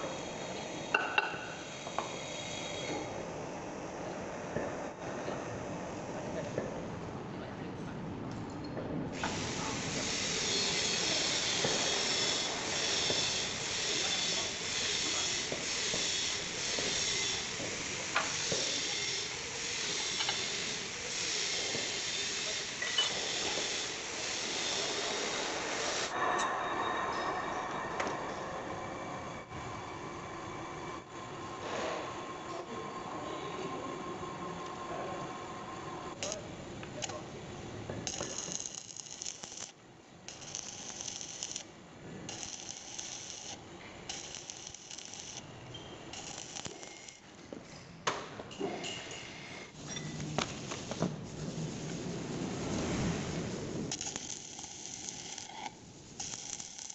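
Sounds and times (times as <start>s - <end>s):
lathe hissing: 0.0s - 3.6s, 9.2s - 36.4s
welding arc crackling: 9.2s - 26.1s, 36.2s - 37.2s, 38.0s - 47.4s, 52.6s - 56.9s.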